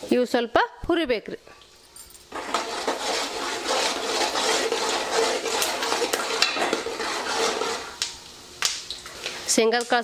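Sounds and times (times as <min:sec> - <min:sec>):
peanuts sizzling in oil: 0:02.2 - 0:10.0
spatula scraping metal pan: 0:02.3 - 0:08.0.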